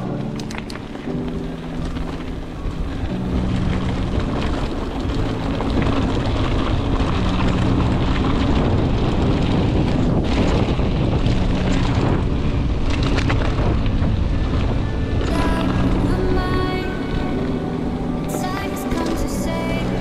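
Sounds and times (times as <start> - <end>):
low music notes: 0.0 - 20.0
tyres rolling on gravel: 0.0 - 20.0
wind rushing over microphone: 0.0 - 20.0.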